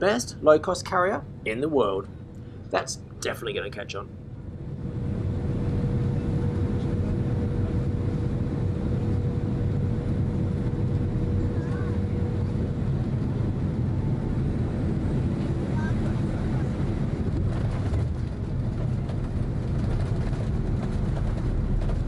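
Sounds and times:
airplane cabin rumble: 0:00.0 - 0:22.0.

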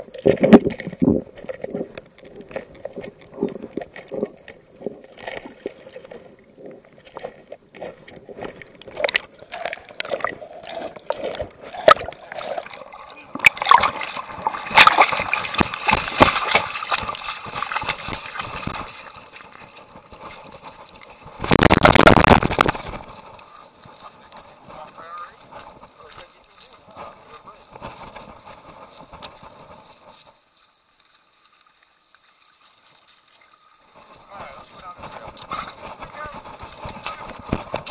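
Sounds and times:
small underwater clicks and knocks: 0:00.0 - 0:37.9
underwater sloshing and gurgling: 0:00.0 - 0:37.9
footsteps on gravel trail: 0:33.9 - 0:37.9.

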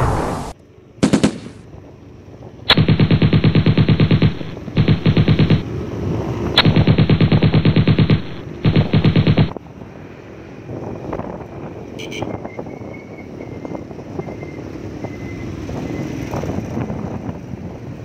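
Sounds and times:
machine-gun fire: 0:01.0 - 0:01.7, 0:02.7 - 0:05.7, 0:06.6 - 0:09.6.

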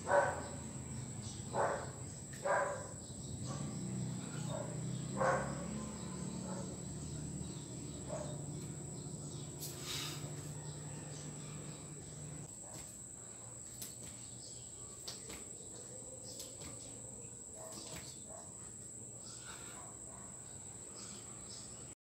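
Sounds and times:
insects trilling: 0:00.0 - 0:21.9.

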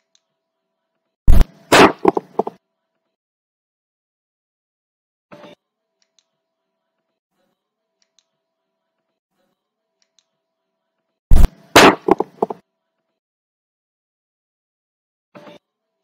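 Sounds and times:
loud bang: 0:11.3 - 0:12.6.

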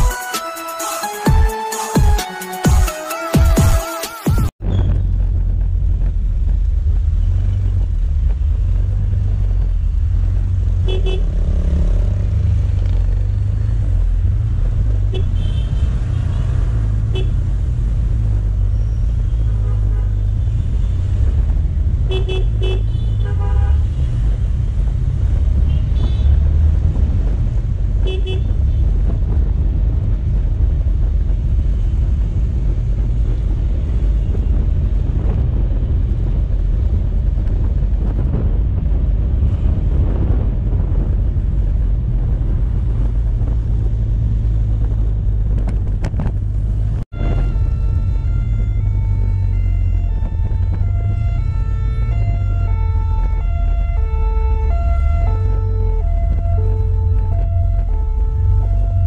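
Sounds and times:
traffic rumble: 0:04.5 - 0:59.0.

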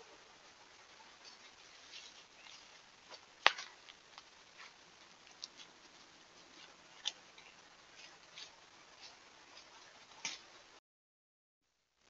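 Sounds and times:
steady hiss: 0:00.0 - 0:10.8
rustling in leaf litter: 0:01.2 - 0:06.7
twigs snapping underfoot: 0:02.0 - 0:04.3.

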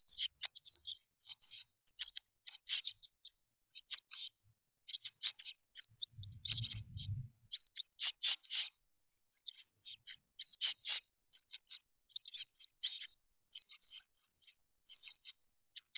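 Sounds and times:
low rustling rumble: 0:06.2 - 0:07.3.

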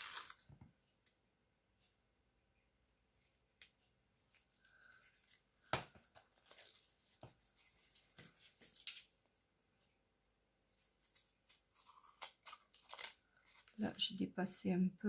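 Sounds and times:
tape tearing off roll: 0:00.0 - 0:00.5
paper and card rustling: 0:04.3 - 0:09.2, 0:10.8 - 0:14.1.

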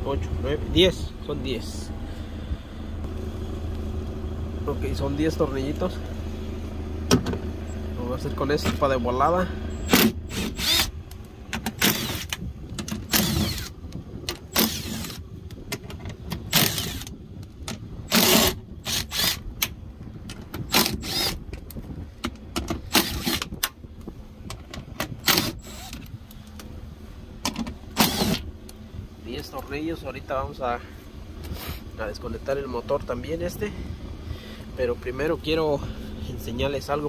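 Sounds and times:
power driver bursts: 0:09.7 - 0:10.9, 0:11.6 - 0:12.4, 0:13.0 - 0:13.8, 0:14.4 - 0:15.2, 0:20.7 - 0:21.4, 0:22.8 - 0:23.8, 0:27.9 - 0:28.4.

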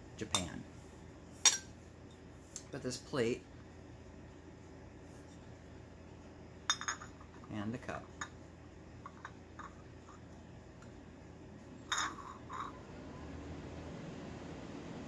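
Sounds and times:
low room hum: 0:00.0 - 0:15.0.

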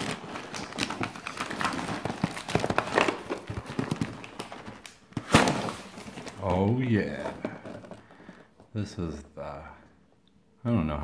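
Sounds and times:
plastic bag crinkling: 0:00.0 - 0:08.7.

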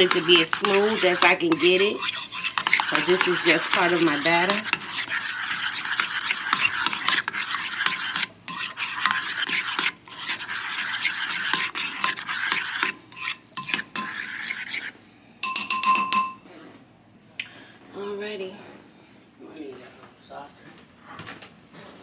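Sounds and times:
fork clinking on bowl: 0:00.0 - 0:05.1, 0:11.5 - 0:14.2, 0:15.4 - 0:16.4
fork beating batter in bowl: 0:00.0 - 0:16.4.

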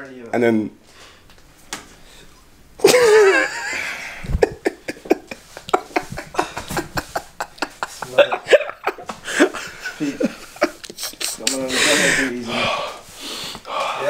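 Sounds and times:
man laughing hard: 0:02.8 - 0:12.4.

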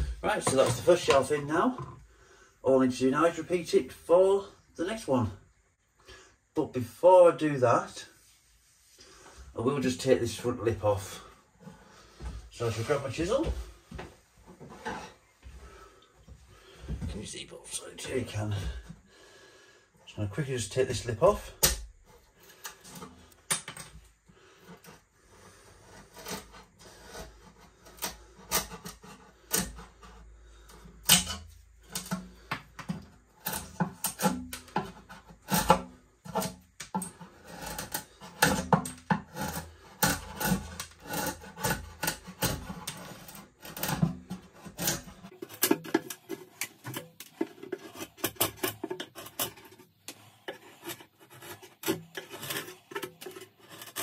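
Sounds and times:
chisel scraping wood: 0:24.2 - 0:54.0.

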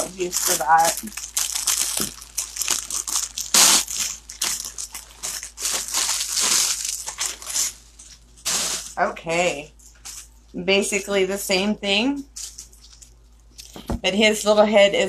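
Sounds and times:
packaging rustling and crinkling: 0:00.0 - 0:09.0, 0:12.3 - 0:14.0.

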